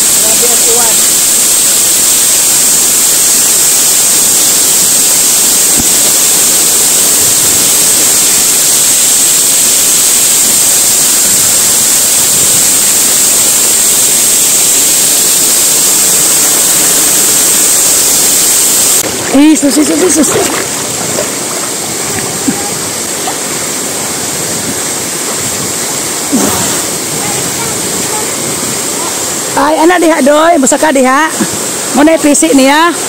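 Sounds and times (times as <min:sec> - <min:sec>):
waterfall rushing onto rock: 0:00.0 - 0:33.0.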